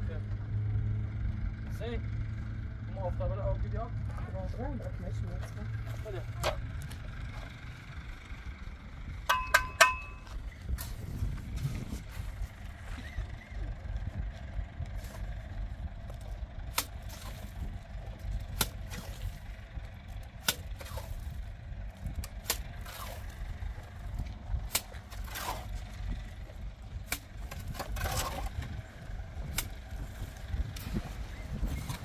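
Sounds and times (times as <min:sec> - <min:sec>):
steady low rumble: 0:00.0 - 0:32.0
hand tool knocking: 0:09.3 - 0:10.3.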